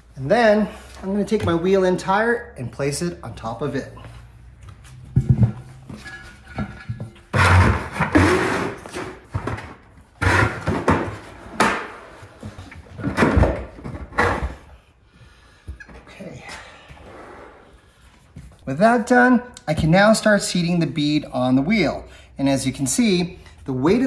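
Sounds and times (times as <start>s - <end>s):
tire thumping on plastic bucket: 5.1s - 11.9s.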